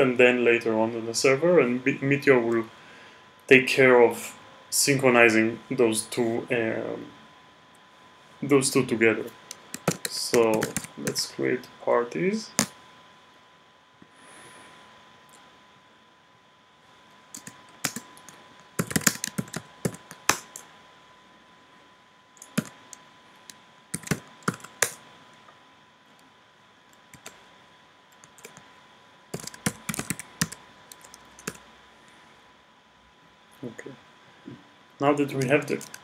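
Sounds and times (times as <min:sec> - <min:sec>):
typing on computer keyboard: 0:09.7 - 0:11.2, 0:17.3 - 0:20.6, 0:22.4 - 0:22.8, 0:24.0 - 0:25.0, 0:28.2 - 0:28.6, 0:29.4 - 0:31.6, 0:35.4 - 0:36.0.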